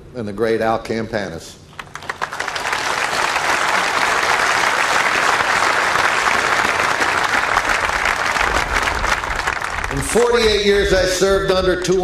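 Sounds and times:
large audience applauding: 0:01.7 - 0:10.6.

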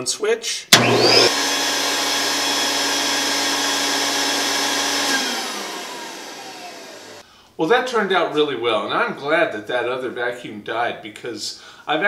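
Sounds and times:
router spindle whine: 0:00.7 - 0:07.2
vacuum rushing: 0:00.8 - 0:01.6.

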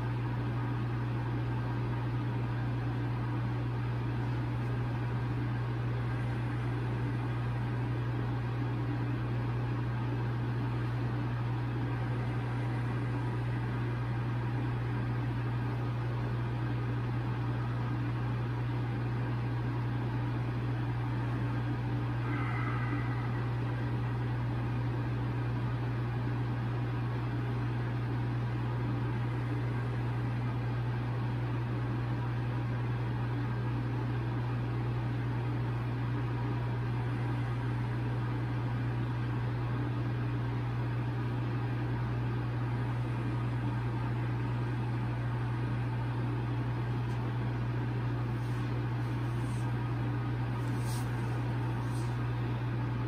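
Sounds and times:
low mechanical hum: 0:00.0 - 0:53.0.

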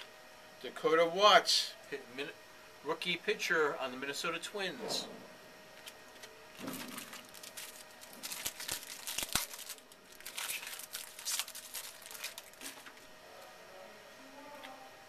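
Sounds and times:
cards being handled: 0:05.8 - 0:13.0
foil wrapper crinkling and tearing: 0:05.8 - 0:13.0.

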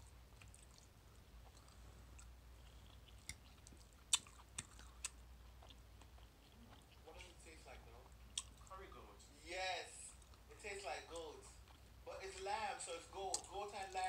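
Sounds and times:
quiet chewing: 0:00.0 - 0:08.8, 0:10.1 - 0:10.5, 0:11.1 - 0:12.5.

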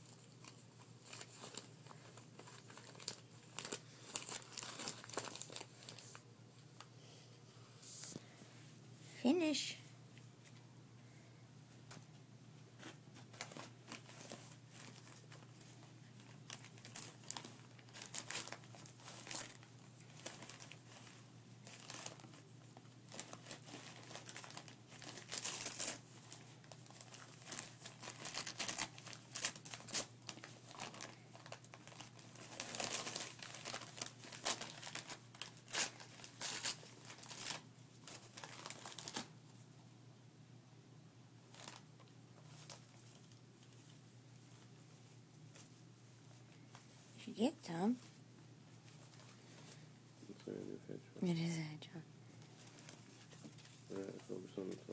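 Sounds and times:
wrapping paper crinkling and tearing: 0:00.0 - 0:06.2, 0:12.8 - 0:39.4, 0:41.5 - 0:44.8, 0:48.8 - 0:49.8, 0:52.4 - 0:54.9.

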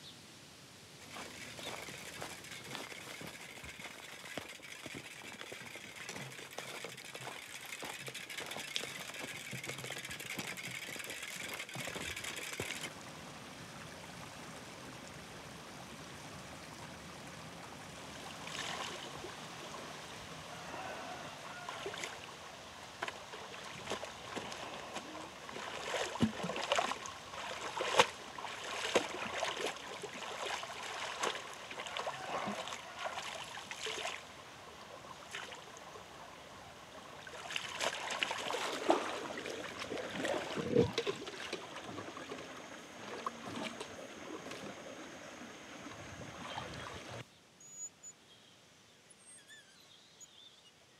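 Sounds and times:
stream running over rocks: 0:00.8 - 0:47.3
laundry splashing in water: 0:23.2 - 0:34.3, 0:37.2 - 0:44.7.

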